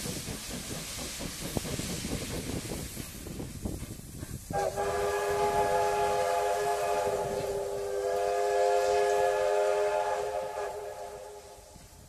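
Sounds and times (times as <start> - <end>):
locomotive whistle: 4.5 - 11.8.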